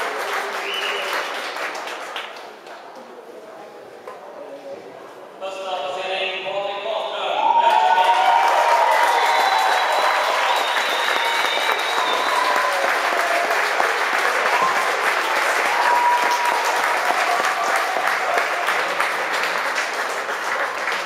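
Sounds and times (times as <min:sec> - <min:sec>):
crowd clapping: 0:00.0 - 0:02.9, 0:07.5 - 0:21.0
voices in crowd: 0:00.0 - 0:21.0.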